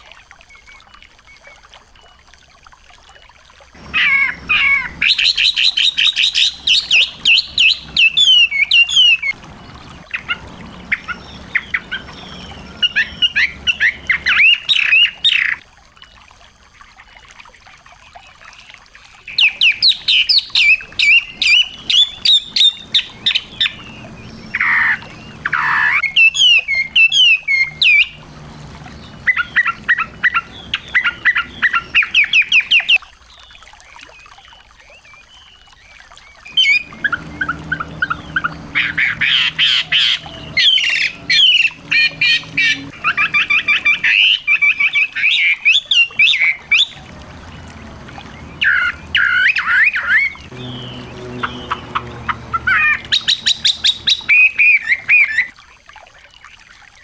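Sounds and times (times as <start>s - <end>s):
lower falling bird notes: 3.8s - 15.6s, 19.3s - 33.0s, 36.4s - 55.5s
songbird chirping: 3.8s - 16.2s, 18.2s - 55.5s.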